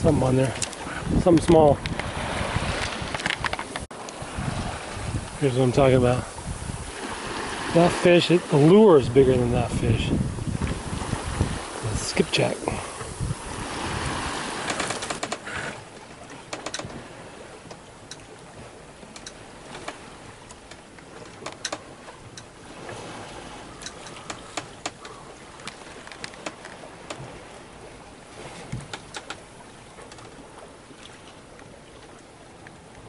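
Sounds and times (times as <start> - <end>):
water splashing along hull: 0.0 - 33.0
light clicks and knocks: 16.5 - 17.0, 19.1 - 22.5, 23.8 - 27.3, 28.6 - 29.4, 30.0 - 30.4.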